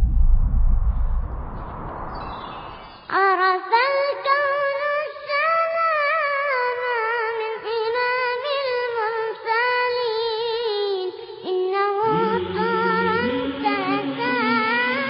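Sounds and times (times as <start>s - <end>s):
solo voice singing a cappella: 3.1s - 15.0s
low humming backing voices: 12.0s - 15.0s.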